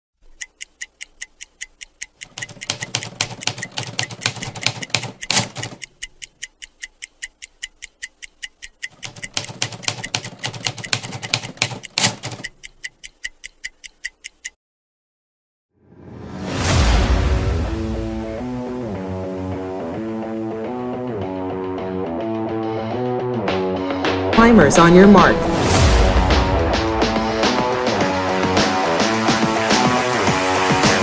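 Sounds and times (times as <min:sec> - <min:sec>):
rapid even ticking: 0:00.2 - 0:14.6.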